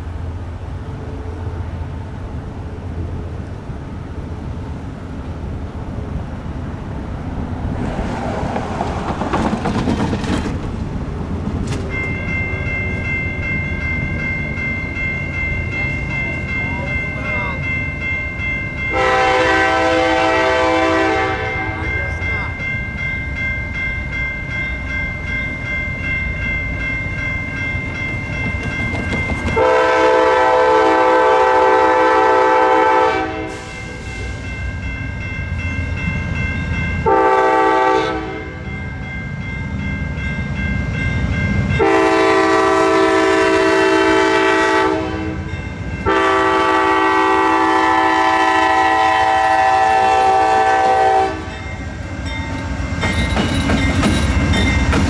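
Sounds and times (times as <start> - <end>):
train rumbling: 0.0 - 55.0
locomotive air horn blasts: 18.9 - 22.0, 29.6 - 33.9, 37.0 - 38.6, 41.8 - 51.5.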